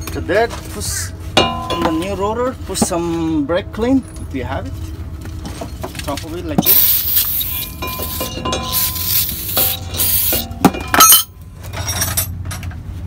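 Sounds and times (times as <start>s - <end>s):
metallic clinks and ringing: 6.7s - 12.4s.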